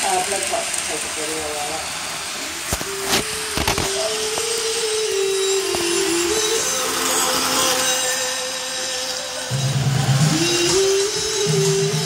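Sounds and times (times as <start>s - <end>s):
model train motor whine: 0.0s - 12.0s.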